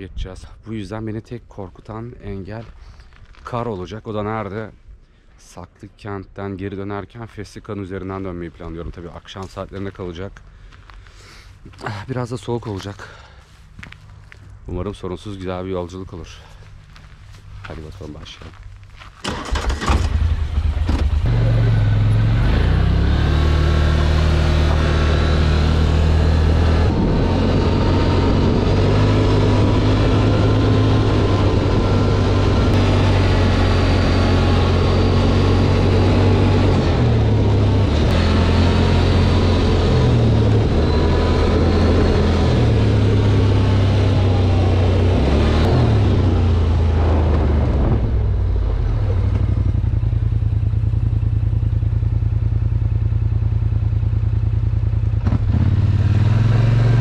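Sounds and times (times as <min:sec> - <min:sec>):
atv engine revving: 0:19.3 - 0:57.0.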